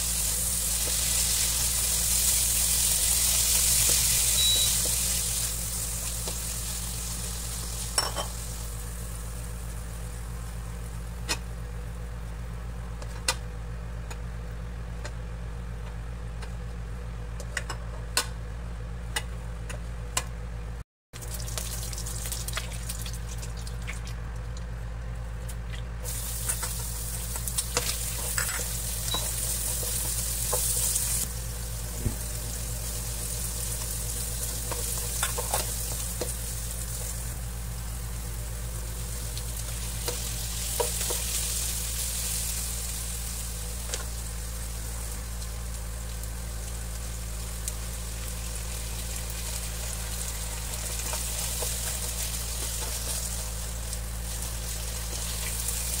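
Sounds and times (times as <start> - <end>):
food sizzling in hot oil: 0.0 - 10.9, 21.2 - 23.9, 26.0 - 56.0
steady low hum: 0.0 - 56.0.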